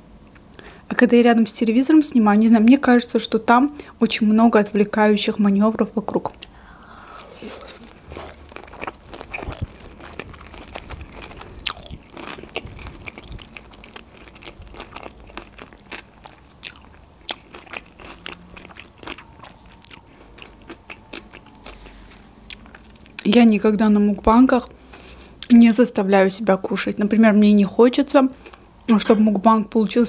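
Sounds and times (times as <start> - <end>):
crunchy chewing: 6.4 - 23.3.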